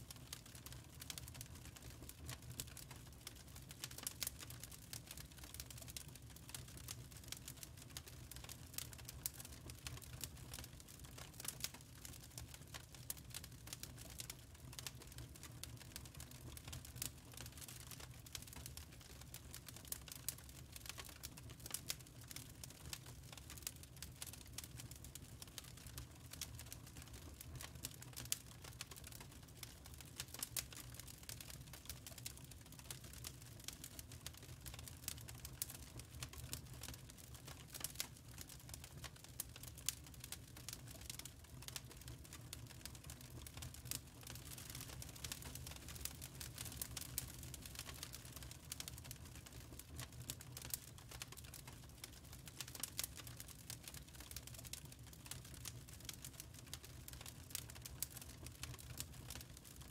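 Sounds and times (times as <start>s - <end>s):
low steady fire rumble: 0.0s - 59.9s
wood fire crackling: 0.0s - 59.9s.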